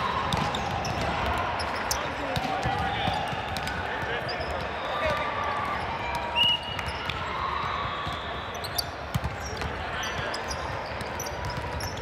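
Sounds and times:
distant voices in a hall: 0.0s - 12.0s
volleyballs thudding: 0.2s - 6.2s.

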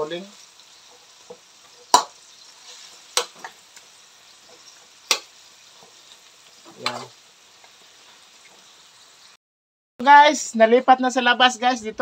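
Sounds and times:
meat sizzling in a wok: 0.0s - 9.4s
metal spatula clanking on wok: 6.8s - 7.1s.

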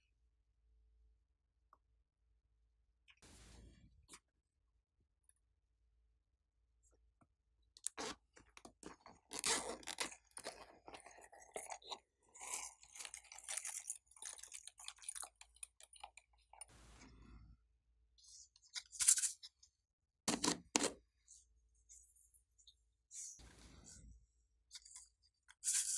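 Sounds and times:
slime crackling and squishing: 7.9s - 16.9s.

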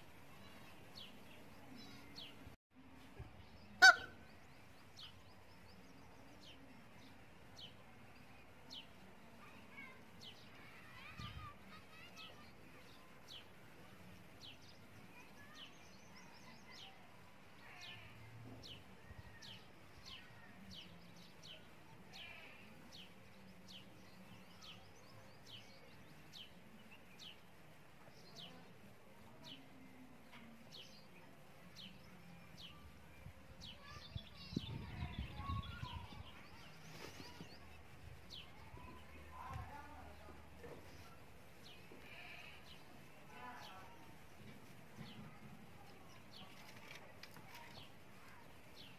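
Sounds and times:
faint outdoor background noise: 0.0s - 48.9s.

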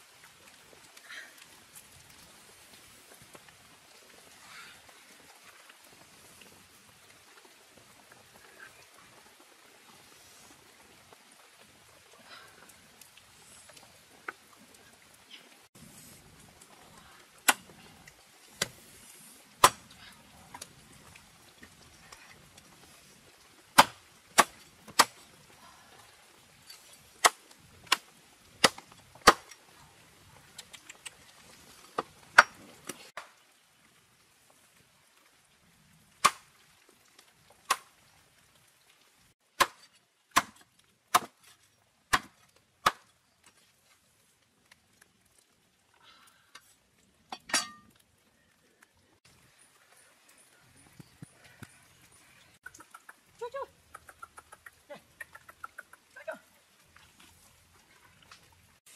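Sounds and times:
blade chopping into wood: 19.6s - 19.9s, 23.8s - 25.2s, 39.6s - 40.6s, 41.2s - 41.4s.

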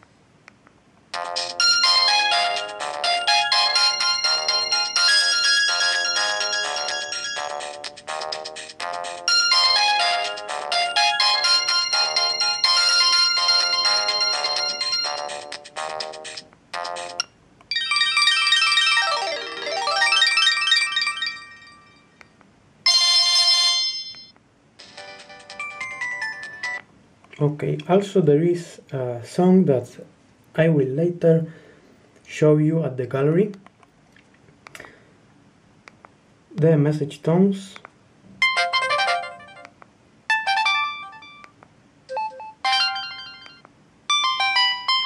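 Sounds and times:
phone ringtone melodies: 1.2s - 22.2s, 22.9s - 26.8s, 38.4s - 41.5s, 42.1s - 45.0s
phone message alert tones: 9.3s - 15.5s, 40.3s - 41.5s, 42.1s - 45.0s.

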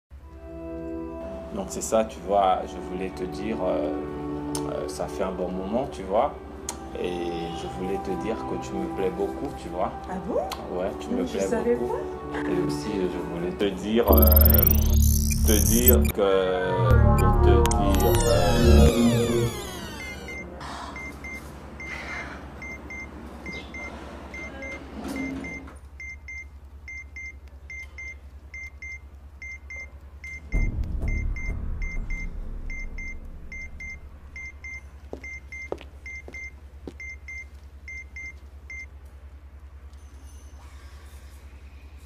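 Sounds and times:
electronic double beeps: 14.1s - 16.2s, 16.8s - 20.4s, 30.5s - 35.4s
low electrical hum: 26.6s - 40.0s
deep rumble: 30.5s - 34.9s.

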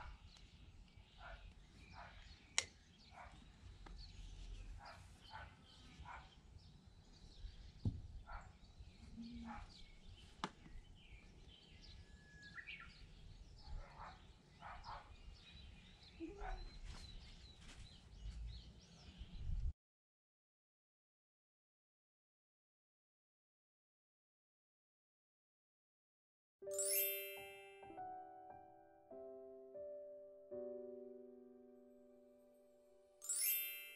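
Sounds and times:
faint birds chirping: 0.0s - 19.7s.

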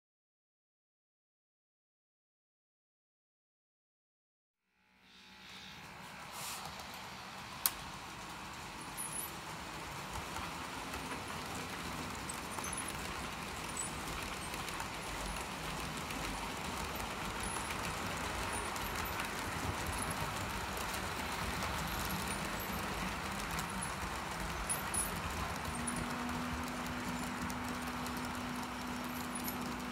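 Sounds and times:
model train wheels rattling on rails: 5.5s - 29.9s.

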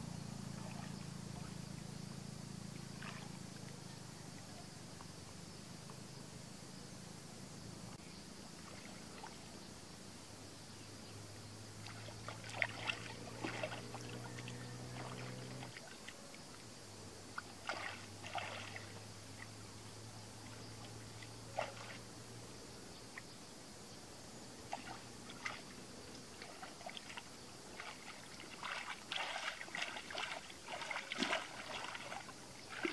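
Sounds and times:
low motor hum: 0.0s - 6.2s, 11.0s - 16.2s, 24.6s - 32.9s
hands splashing in muddy water: 11.8s - 15.9s, 17.4s - 18.9s, 26.4s - 32.9s.

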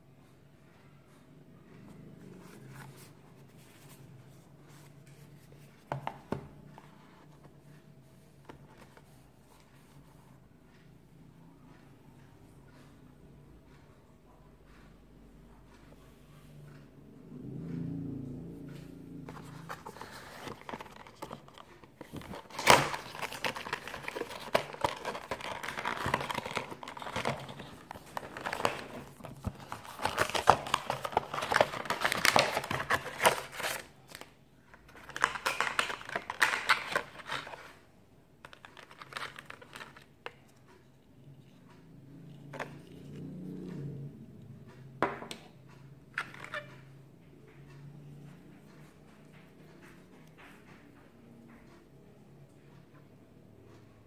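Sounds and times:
packaging crinkling and rustling: 19.3s - 34.3s, 34.9s - 37.8s, 38.5s - 40.1s.

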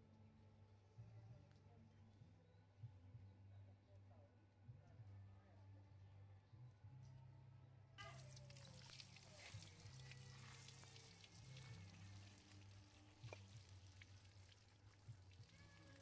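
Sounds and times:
hose water splashing on metal: 8.0s - 16.0s.

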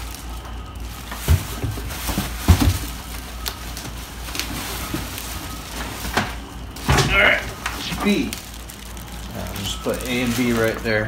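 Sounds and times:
plastic wrap and foam rustling: 0.0s - 11.0s
dull thumps: 1.1s - 3.1s.

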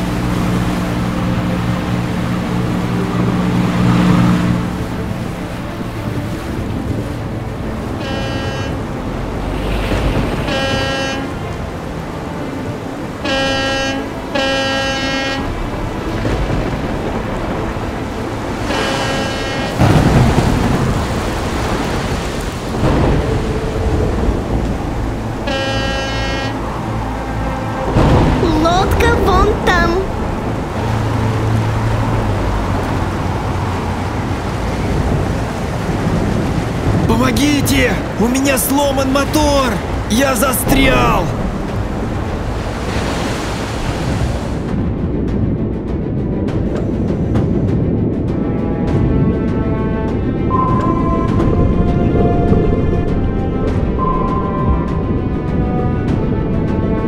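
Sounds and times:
boat horn toots: 0.0s - 16.7s, 17.4s - 21.2s, 23.0s - 28.4s
rain: 0.0s - 57.0s
waves: 0.0s - 57.0s
wind: 0.0s - 57.0s
low rumble: 15.4s - 37.2s, 39.8s - 57.0s.

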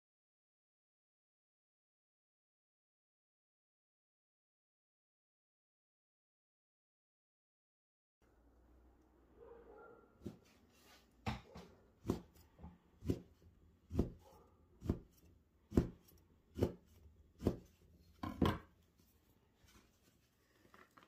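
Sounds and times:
knife cutting on wooden board: 11.3s - 18.6s.

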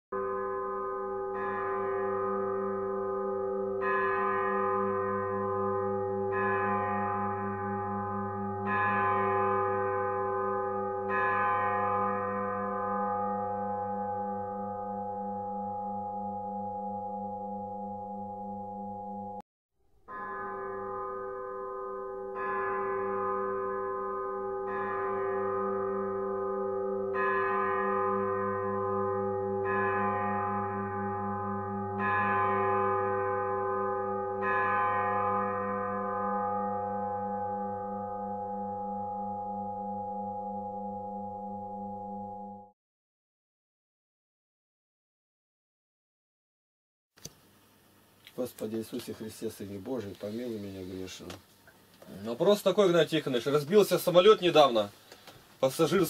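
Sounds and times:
deep bell tolling: 0.2s - 19.4s, 20.1s - 42.7s.

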